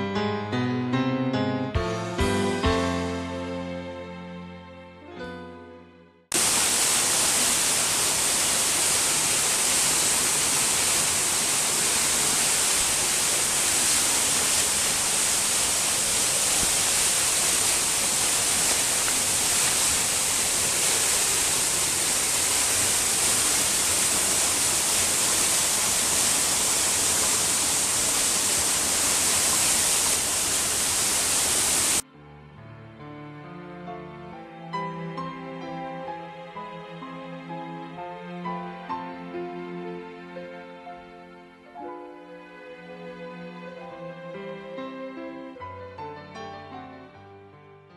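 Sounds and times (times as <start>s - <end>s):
waterfall rushing: 6.3s - 32.0s.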